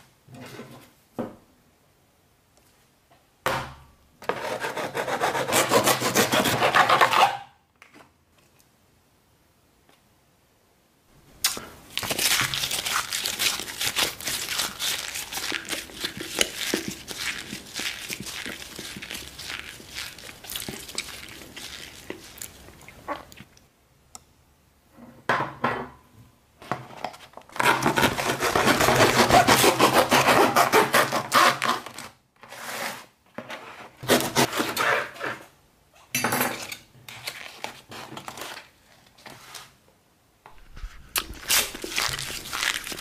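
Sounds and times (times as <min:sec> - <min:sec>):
knife cutting cardboard box: 0:04.2 - 0:07.4, 0:27.6 - 0:33.1, 0:34.0 - 0:35.4.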